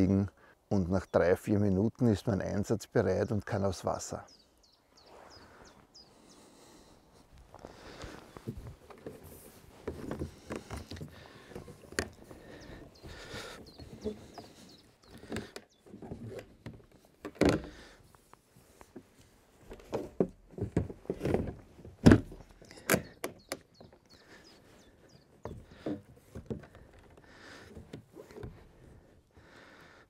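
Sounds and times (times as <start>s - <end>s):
knocks and thuds of plastic sections: 15.1s - 17.8s, 19.8s - 23.6s.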